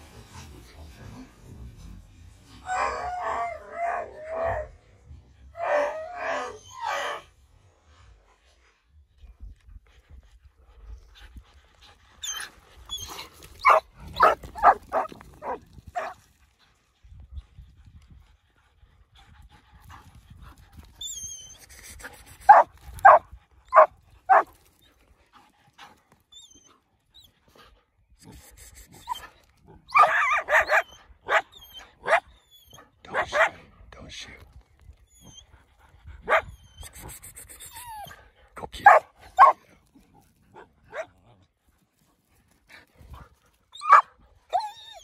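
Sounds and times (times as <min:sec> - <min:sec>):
dog barking: 0:13.6 - 0:16.2, 0:22.5 - 0:24.5, 0:30.0 - 0:32.2, 0:33.1 - 0:33.6, 0:38.8 - 0:39.6.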